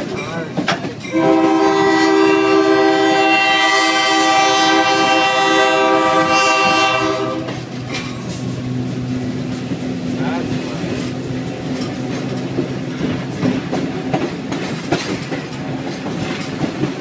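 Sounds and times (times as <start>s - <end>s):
locomotive air horn blast: 1.1s - 7.7s.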